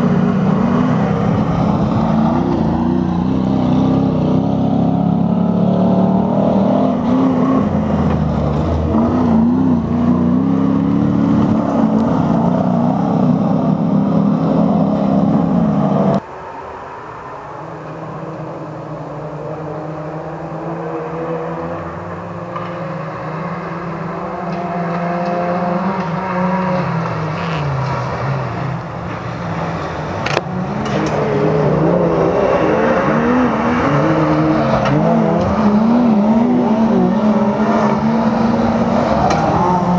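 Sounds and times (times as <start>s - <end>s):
truck engines revving hard: 0.0s - 16.2s, 18.0s - 39.9s
distant engines rising and falling: 0.0s - 39.9s.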